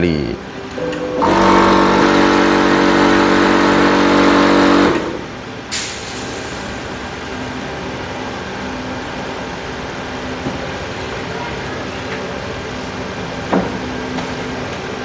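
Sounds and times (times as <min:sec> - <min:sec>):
motor running: 0:00.7 - 0:05.8
sharp hiss: 0:05.7 - 0:07.2.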